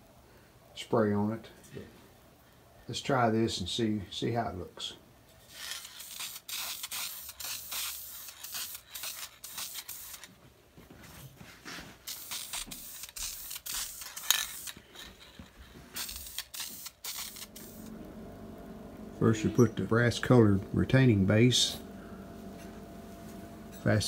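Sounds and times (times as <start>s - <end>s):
aerosol can spraying bursts: 5.6s - 10.3s, 12.0s - 14.8s, 15.9s - 17.9s.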